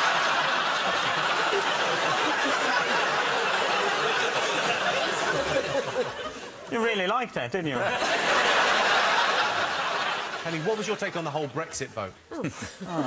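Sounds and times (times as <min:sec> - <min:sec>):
studio audience laughing: 0:00.0 - 0:06.7, 0:07.7 - 0:11.4.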